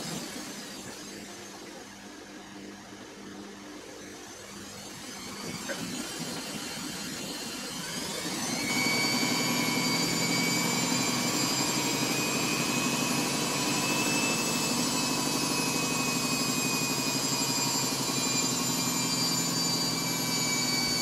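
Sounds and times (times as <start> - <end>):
washing machine drum spinning: 4.9 - 21.0.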